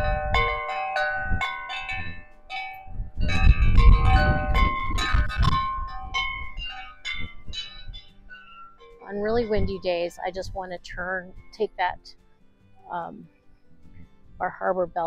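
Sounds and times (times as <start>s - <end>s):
wind buffeting microphone: 0.0s - 8.3s, 9.0s - 11.5s
wind chime ringing: 0.0s - 9.6s.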